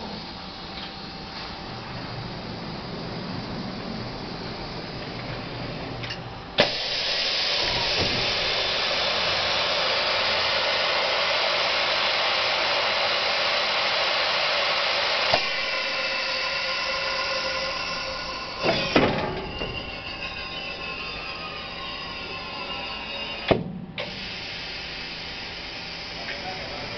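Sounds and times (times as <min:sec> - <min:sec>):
clunks: 0:17.8 - 0:21.5.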